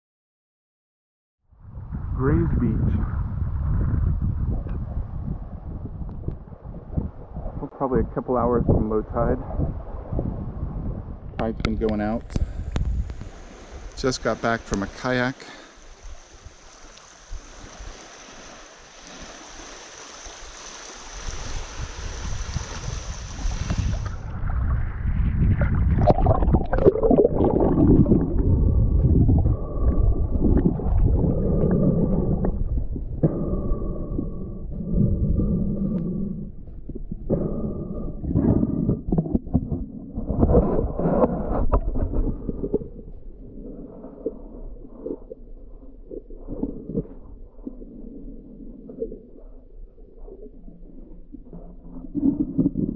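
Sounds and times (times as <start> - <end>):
muffled underwater rumbling: 1.5 - 16.6, 20.4 - 52.9
steady hiss: 12.3 - 24.0
small waves lapping: 12.4 - 24.7
low buffeting: 22.1 - 52.9
underwater knocks and thumps: 25.5 - 33.6, 36.6 - 43.2, 46.0 - 48.0, 50.2 - 52.9.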